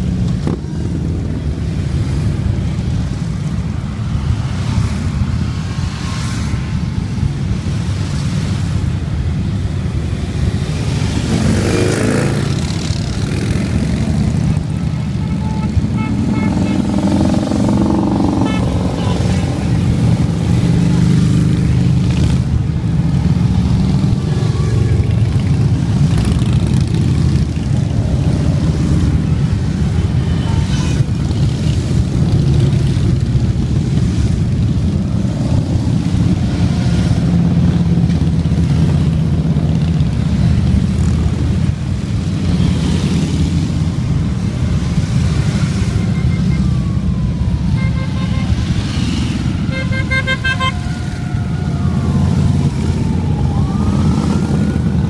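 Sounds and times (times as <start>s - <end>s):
motorcycles rumbling past: 10.5s - 47.2s, 47.8s - 55.0s
siren gliding in pitch: 45.6s - 55.0s.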